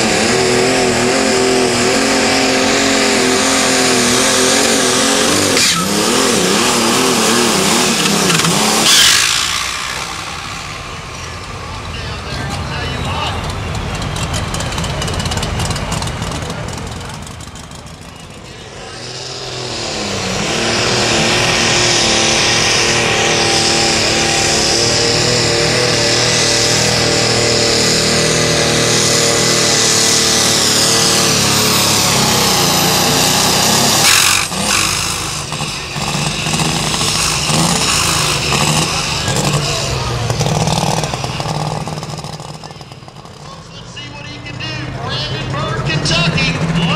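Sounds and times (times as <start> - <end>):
high whine: 0.0 - 13.9
diesel tractor engine at full load: 0.0 - 46.9.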